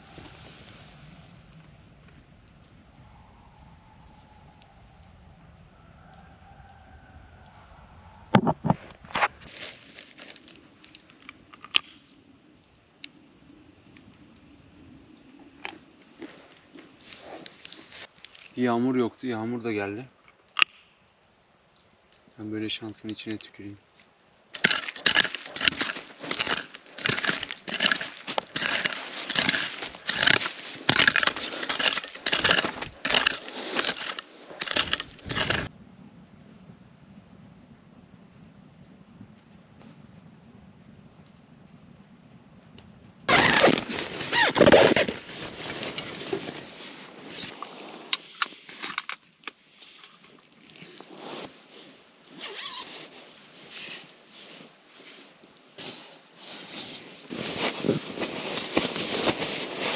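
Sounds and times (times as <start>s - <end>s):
crunching rustles: 8.4s - 12.0s, 15.4s - 19.0s, 22.7s - 35.7s, 43.3s - 59.9s
zipper being pulled: 24.6s - 35.7s, 43.3s - 46.6s, 52.3s - 53.1s.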